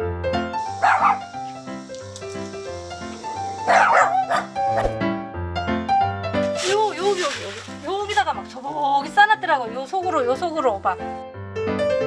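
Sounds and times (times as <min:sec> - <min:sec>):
background music: 0:00.0 - 0:12.0
dog barking: 0:00.6 - 0:01.5, 0:03.6 - 0:05.0.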